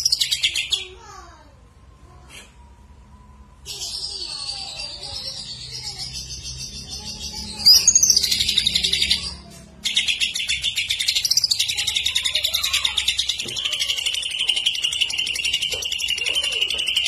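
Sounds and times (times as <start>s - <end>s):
bird singing warbling song: 3.8s - 17.0s.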